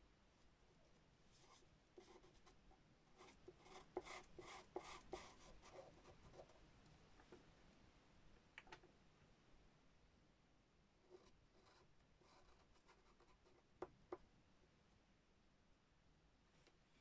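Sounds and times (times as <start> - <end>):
pencil scratching on paper: 1.4 - 2.6, 3.2 - 6.5, 11.1 - 13.6.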